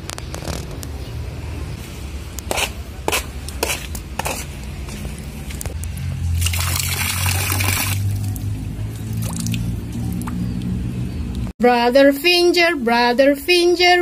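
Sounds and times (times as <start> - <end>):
water splashing onto pond: 6.2 - 10.8.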